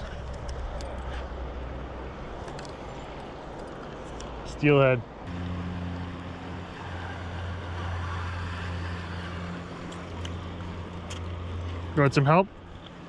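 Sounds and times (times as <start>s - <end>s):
engine humming: 5.1s - 13.0s.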